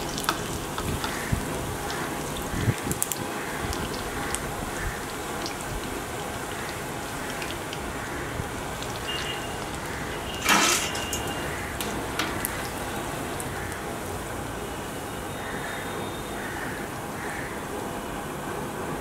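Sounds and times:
food sizzling in deep-frying oil: 0:00.0 - 0:14.2.

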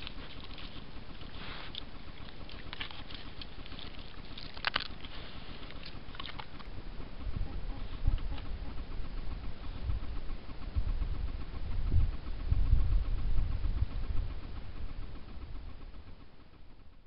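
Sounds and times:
faint clicks and rustles: 0:00.0 - 0:12.4
animal rooting on the ground: 0:00.0 - 0:16.8.

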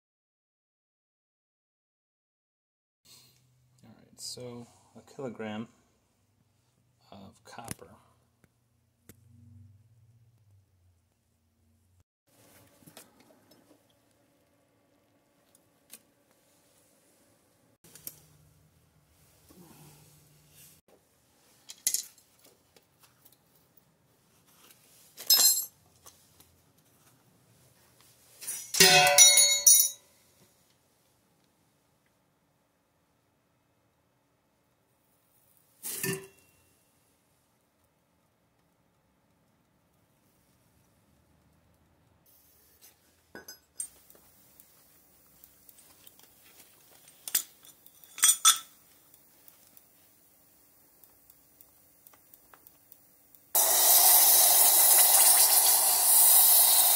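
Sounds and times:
metal clinking on crucible: 0:28.5 - 0:30.0, 0:42.7 - 0:44.1, 0:47.1 - 0:48.8
steel tongs and mold clanking: 0:47.2 - 0:48.8.

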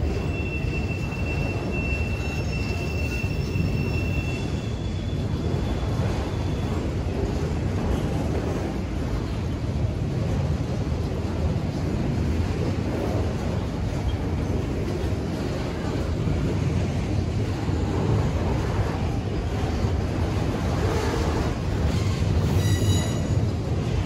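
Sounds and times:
high-pitched wheel squeal: 0:00.0 - 0:06.6, 0:22.5 - 0:23.4
train wheels rumbling on rails: 0:00.0 - 0:24.0.

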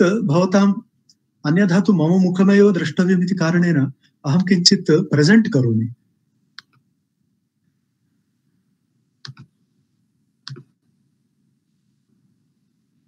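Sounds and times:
computer mouse clicks: 0:06.6 - 0:06.8, 0:09.2 - 0:09.5, 0:10.4 - 0:10.8.

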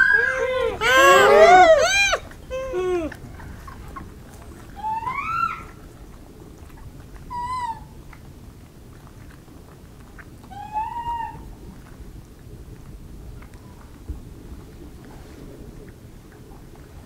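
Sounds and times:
monkey coo calls: 0:00.0 - 0:03.2
low steady rumble: 0:00.0 - 0:17.0.

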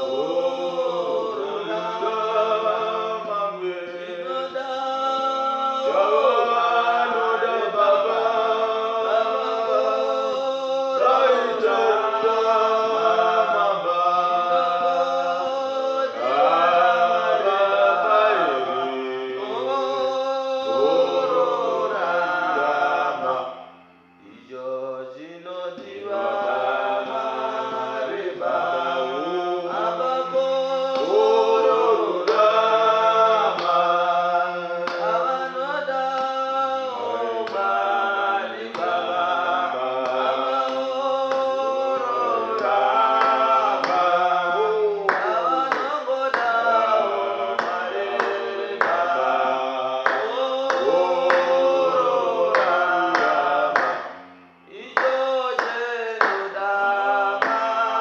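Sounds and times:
group singing gospel in harmony: 0:00.0 - 0:58.0
hand claps: 0:30.8 - 0:31.2, 0:32.2 - 0:32.6, 0:33.5 - 0:33.8, 0:34.8 - 0:35.2, 0:37.4 - 0:37.7, 0:38.7 - 0:39.0, 0:40.0 - 0:41.8, 0:42.5 - 0:44.2, 0:45.0 - 0:46.9, 0:47.6 - 0:49.4, 0:50.0 - 0:54.3, 0:55.0 - 0:56.6, 0:57.4 - 0:57.8.

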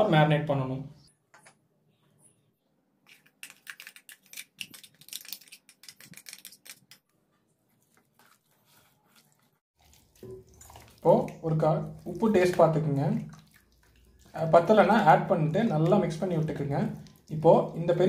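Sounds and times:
paste worked by hand: 0:07.7 - 0:18.0.

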